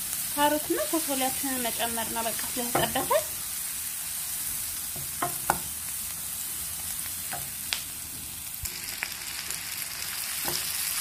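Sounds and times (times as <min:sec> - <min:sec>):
vegetables sizzling in oil: 0:00.0 - 0:11.0
spatula knocking against pan: 0:02.7 - 0:03.2, 0:05.0 - 0:05.7.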